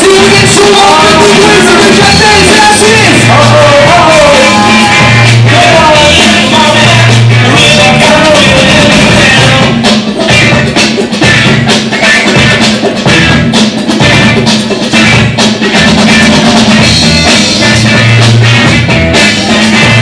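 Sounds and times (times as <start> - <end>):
person singing: 0.0 - 10.9
deep bass line: 0.0 - 11.6, 12.4 - 14.4, 15.0 - 20.0
drums: 0.0 - 20.0.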